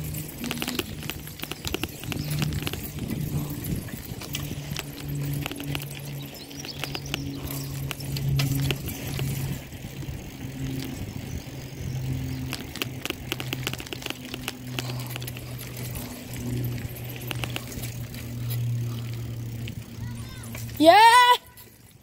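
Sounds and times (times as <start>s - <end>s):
wind on microphone: 0.0s - 18.2s
bike rattling clicks: 0.0s - 22.0s
low pitch-shifting hum: 0.0s - 22.0s
road rumble: 0.0s - 22.0s.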